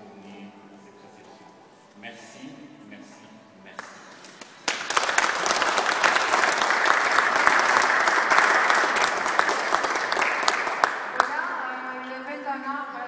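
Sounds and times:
audience applauding: 0:03.8 - 0:11.8.

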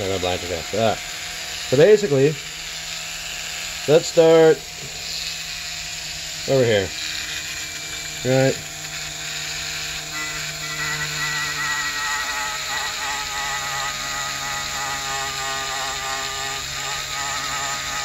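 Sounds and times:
rotary tool whirring: 0:00.0 - 0:18.0.

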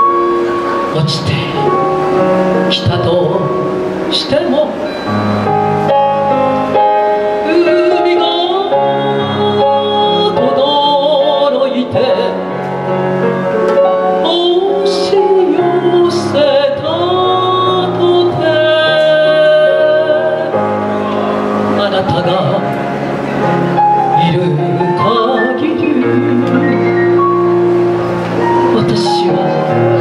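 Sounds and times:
instrumental backing music: 0:00.0 - 0:30.0
woman singing into microphone: 0:07.3 - 0:12.5, 0:14.2 - 0:20.8, 0:21.6 - 0:22.7, 0:24.1 - 0:27.0, 0:28.7 - 0:30.0.

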